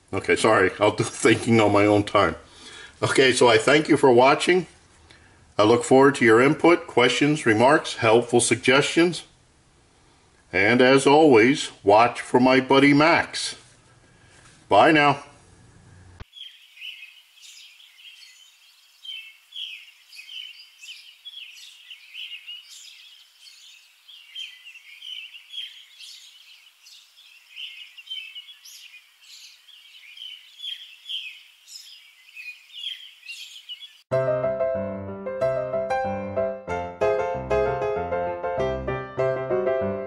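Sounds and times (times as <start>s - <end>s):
small birds chirping: 15.9s - 34.1s
piano music: 34.1s - 40.0s.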